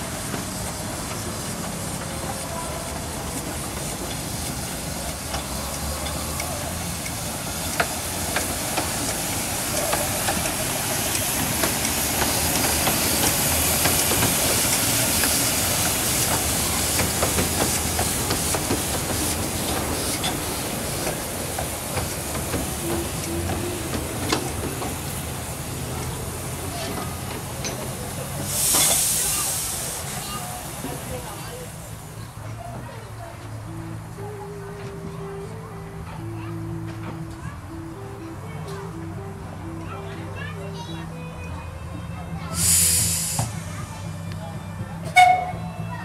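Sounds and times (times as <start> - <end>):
train clicks and knocks: 0.0 - 31.6
steam hissing: 0.0 - 32.2, 42.5 - 44.2.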